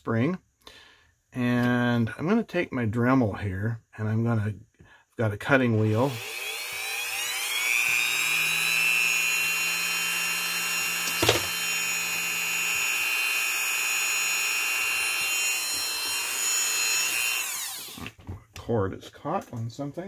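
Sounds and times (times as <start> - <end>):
rotary tool whine: 6.0 - 18.2.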